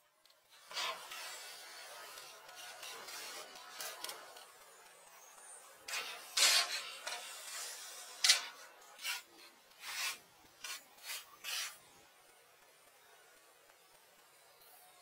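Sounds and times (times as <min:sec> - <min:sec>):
building materials scraping: 0:00.6 - 0:04.8, 0:05.8 - 0:12.0.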